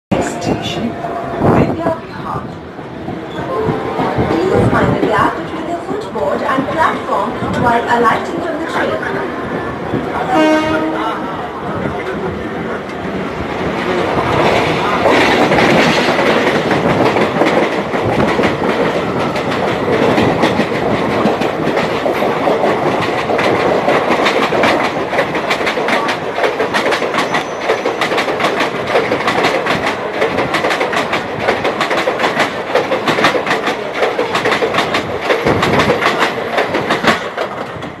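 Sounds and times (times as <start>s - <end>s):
train wheels rumbling on rails: 0.1s - 38.0s
clickety-clack over rail joints: 11.7s - 38.0s.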